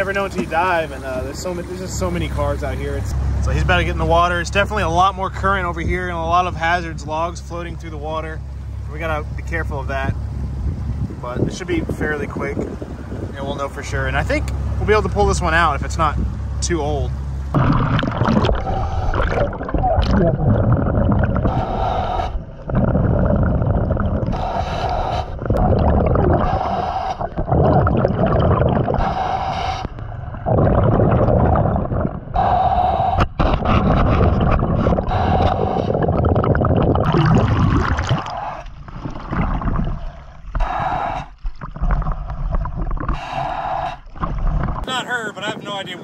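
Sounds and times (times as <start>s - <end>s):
bubbling exhale underwater: 17.5s - 44.9s
hissing regulator inhale: 21.4s - 22.8s, 24.2s - 25.6s, 26.3s - 27.5s, 28.9s - 30.0s, 32.3s - 36.3s.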